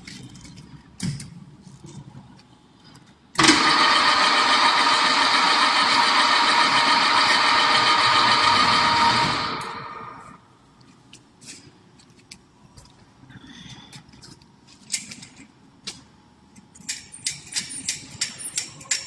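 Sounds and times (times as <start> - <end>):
machine motor whirring whine: 3.4 - 10.4.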